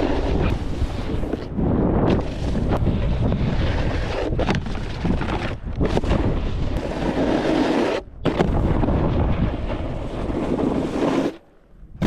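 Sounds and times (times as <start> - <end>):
wind buffeting microphone: 0.0 - 7.4, 8.0 - 11.0
snowboard scraping over snow: 0.0 - 11.5.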